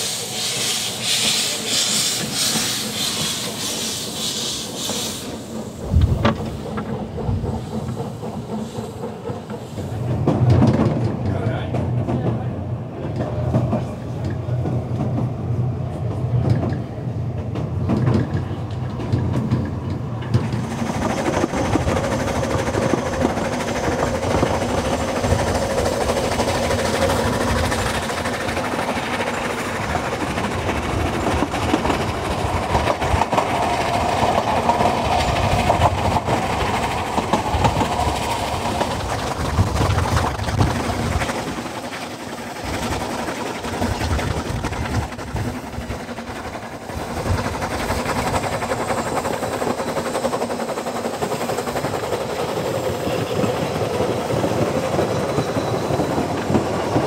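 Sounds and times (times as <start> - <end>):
hissing rush: 0.0 - 10.2
steam locomotive working: 0.0 - 57.0
train wheels clattering on rails: 0.0 - 57.0.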